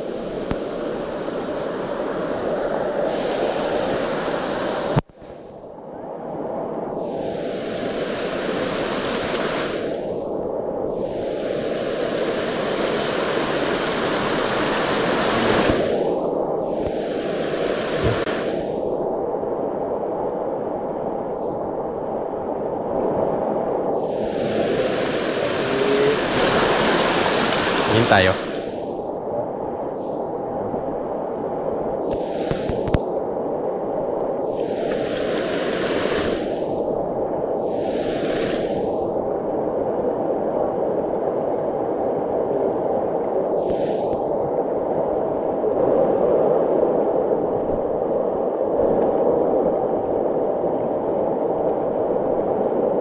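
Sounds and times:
waterfall rushing: 0:11.4 - 0:16.0, 0:24.1 - 0:28.8, 0:34.6 - 0:36.5.

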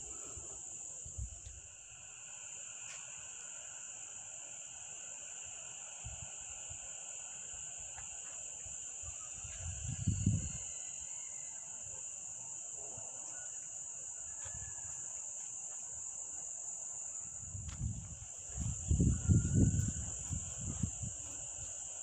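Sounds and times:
high-pitched insect drone: 0:00.0 - 0:22.0
wind rumble on microphone: 0:09.4 - 0:10.6, 0:17.2 - 0:21.8.

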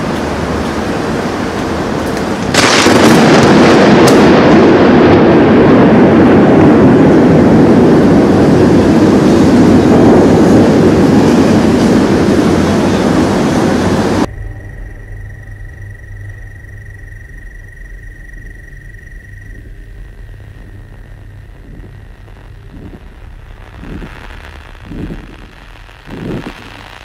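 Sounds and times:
harsh electronic noise wall: 0:06.7 - 0:27.0
quiet hiss: 0:14.2 - 0:27.0.

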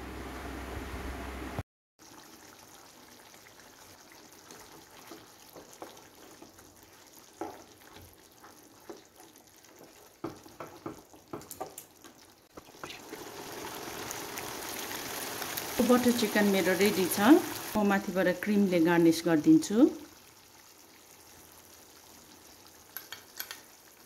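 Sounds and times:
spatula stirring wet gravy: 0:02.1 - 0:11.8
simmering bubbling hiss: 0:12.5 - 0:24.0.

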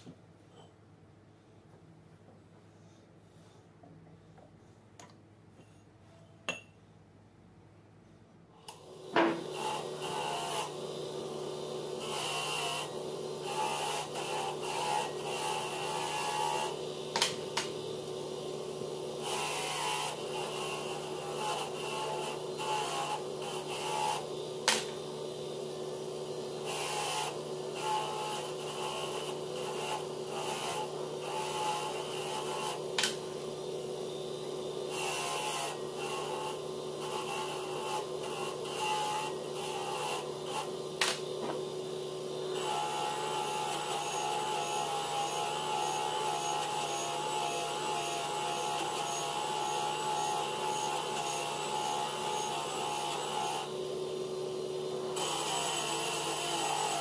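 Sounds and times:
angle grinder grinding steel: 0:09.1 - 0:57.0.

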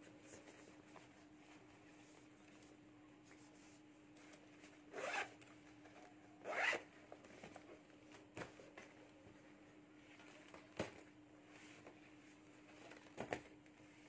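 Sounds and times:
handbag zip pulled: 0:05.0 - 0:05.3, 0:06.5 - 0:06.8.

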